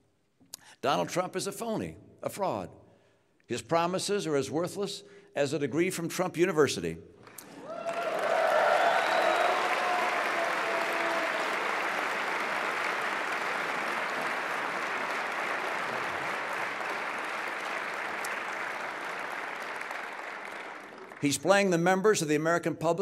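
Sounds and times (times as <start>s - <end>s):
audience applauding: 7.3s - 21.5s.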